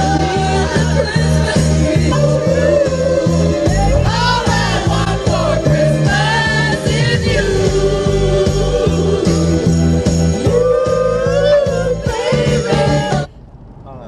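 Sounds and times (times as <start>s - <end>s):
people singing along: 0.0s - 13.3s
upbeat christmas pop song: 0.0s - 13.3s
upbeat pop song: 0.0s - 13.3s.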